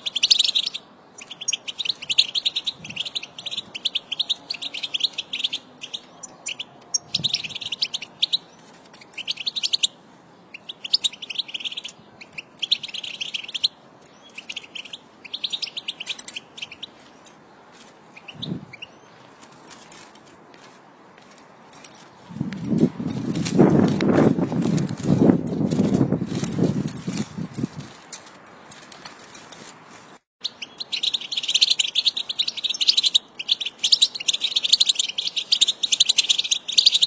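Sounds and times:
goldfinches twittering: 0:00.0 - 0:09.9, 0:10.5 - 0:16.9, 0:30.4 - 0:37.0.

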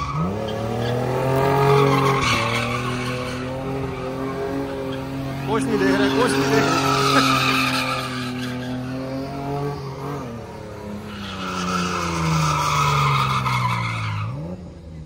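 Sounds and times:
tyres squealing: 0:00.0 - 0:10.0
car engine revving: 0:00.0 - 0:15.0.

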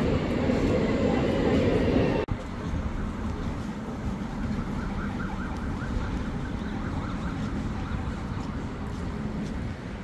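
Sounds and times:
faint siren warbling: 0:04.4 - 0:08.2.

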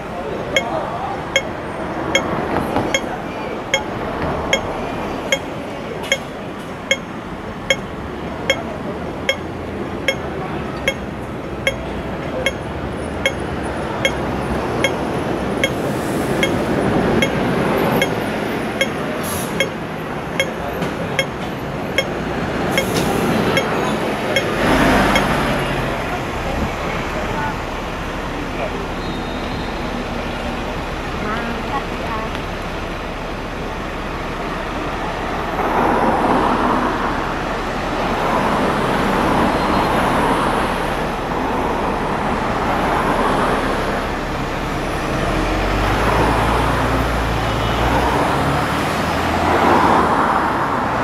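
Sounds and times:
regular metallic ticking: 0:00.0 - 0:25.4
distant voices: 0:00.0 - 0:51.0
street noise: 0:00.0 - 0:51.0.

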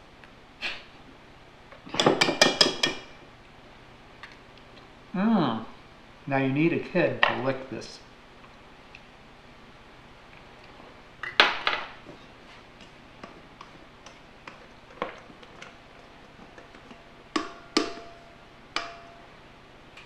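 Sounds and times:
utensils knocking steel bowl: 0:02.0 - 0:03.1, 0:16.6 - 0:19.3.

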